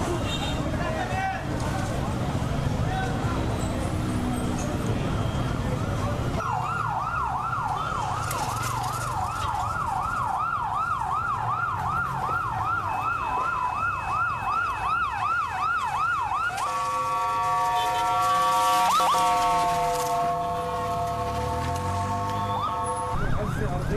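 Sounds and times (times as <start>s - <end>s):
low street rumble: 0.0s - 23.9s
siren wailing: 6.4s - 23.9s.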